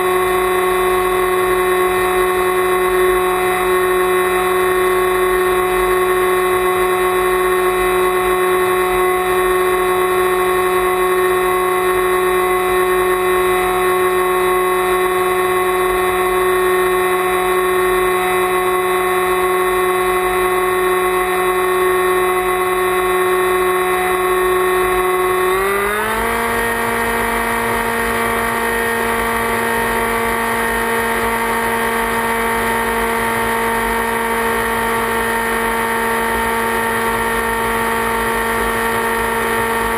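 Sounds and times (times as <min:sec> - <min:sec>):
motor and propeller whine: 0:00.0 - 0:39.9.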